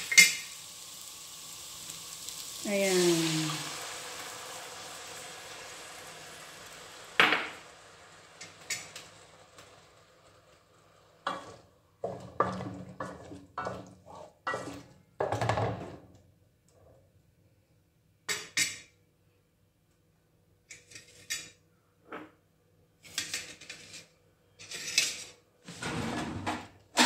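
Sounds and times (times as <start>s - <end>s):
sauce sizzling in a pot: 0.0s - 15.4s
spatula scraping a pot: 11.2s - 14.9s.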